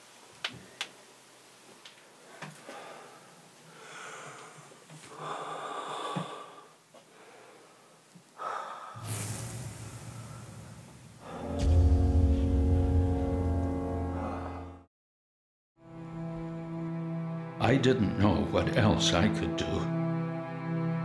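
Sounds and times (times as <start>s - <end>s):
person breathing heavily and gasping: 2.4s - 9.0s
hiss: 8.4s - 11.5s
low drone: 9.0s - 14.9s.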